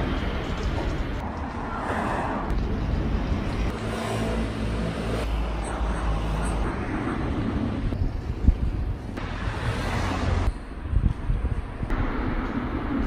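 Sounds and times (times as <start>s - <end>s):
street noise: 0.0s - 13.0s
wind on microphone: 5.7s - 13.0s.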